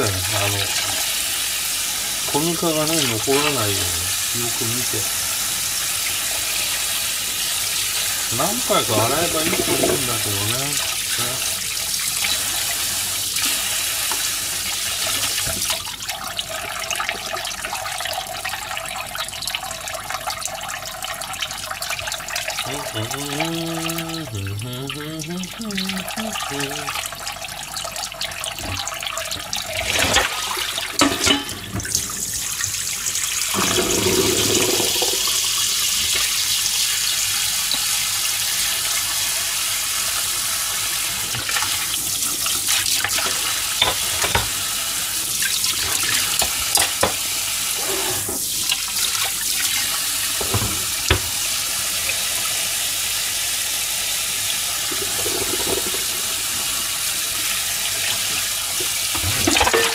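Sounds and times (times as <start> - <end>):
tap running into steel bowl: 43.1 - 44.6, 45.9 - 47.3, 50.4 - 51.4, 58.8 - 59.9.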